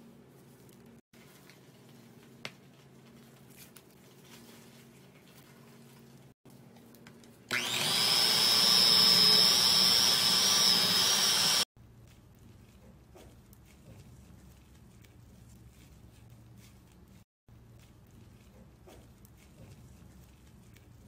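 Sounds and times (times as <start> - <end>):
electric hand mixer whirring: 7.5 - 11.7.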